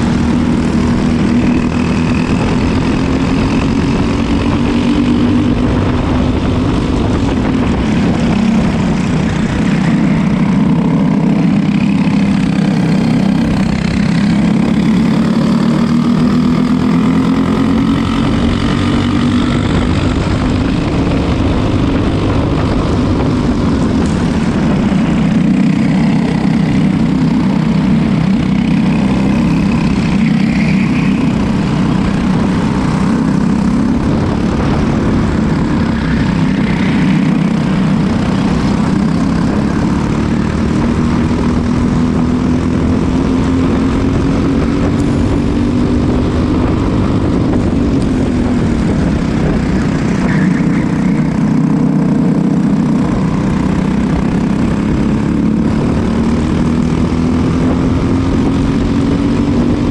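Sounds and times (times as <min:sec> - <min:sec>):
go-kart engine running hard: 0:00.0 - 0:59.9.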